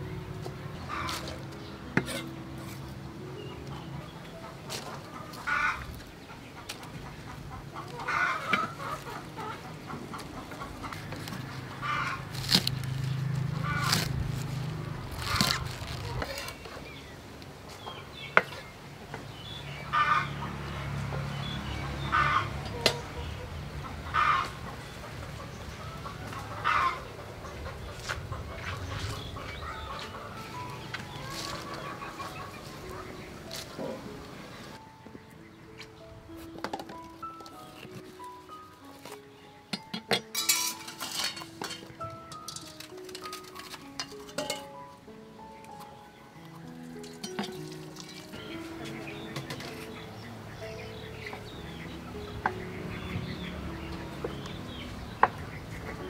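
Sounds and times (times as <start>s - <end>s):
hens clucking: 0.0s - 18.8s, 19.7s - 56.0s
flower stalks snapping: 12.3s - 16.8s.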